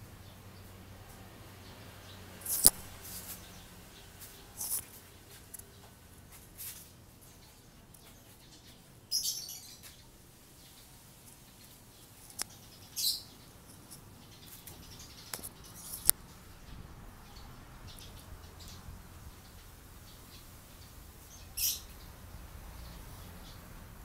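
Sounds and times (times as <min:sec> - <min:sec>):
high bird chirps: 0:02.4 - 0:03.7, 0:07.5 - 0:10.1, 0:12.2 - 0:16.2, 0:17.2 - 0:22.1
sharp single clicks: 0:02.5 - 0:02.9.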